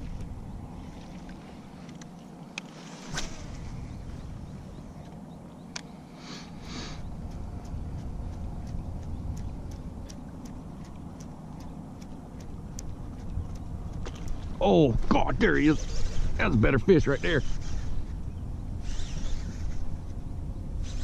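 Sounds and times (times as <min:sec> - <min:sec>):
low rumble: 0:03.2 - 0:05.1, 0:06.6 - 0:16.9
short hisses: 0:06.2 - 0:07.0
fishing reel ticking: 0:18.8 - 0:19.8.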